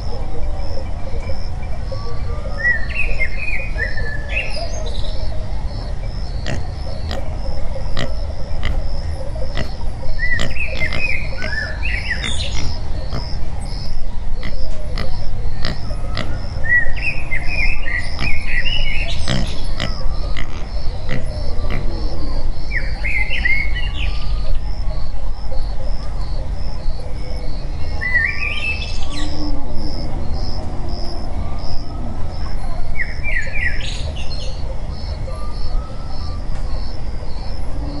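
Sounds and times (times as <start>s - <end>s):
high chirping animal calls: 0.0s - 24.4s
faint regular ticks: 9.5s - 9.8s.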